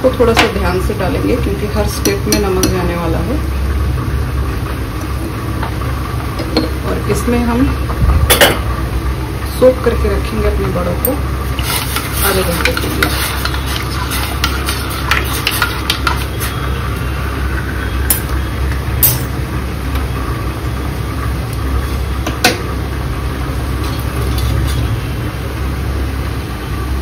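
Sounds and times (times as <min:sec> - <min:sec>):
low machine hum: 0:00.0 - 0:27.0
utensils clinking against pots: 0:11.0 - 0:16.7, 0:18.0 - 0:18.4, 0:19.0 - 0:19.4.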